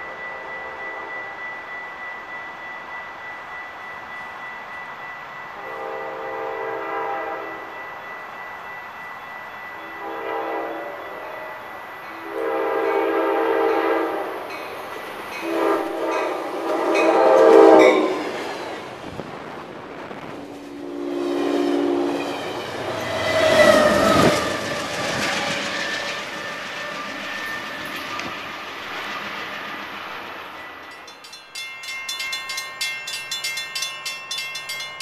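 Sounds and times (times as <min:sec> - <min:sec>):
train cars rumbling past: 0:00.0 - 0:35.0
train horn chord blasts: 0:05.6 - 0:07.9, 0:09.8 - 0:14.5, 0:15.4 - 0:18.3, 0:20.6 - 0:24.7.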